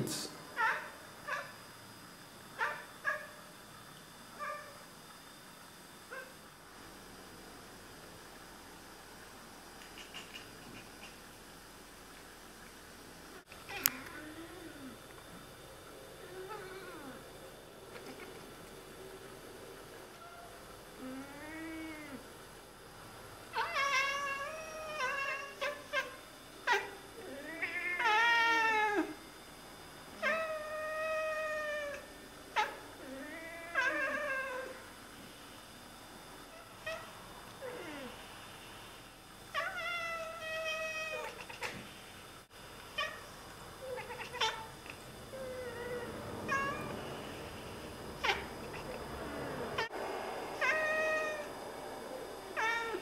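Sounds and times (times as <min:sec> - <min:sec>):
cats chattering and meowing: 0:09.8 - 0:11.4, 0:17.9 - 0:18.6, 0:20.1 - 0:22.3, 0:23.5 - 0:29.2, 0:30.2 - 0:34.9, 0:39.5 - 0:41.9, 0:42.8 - 0:53.0.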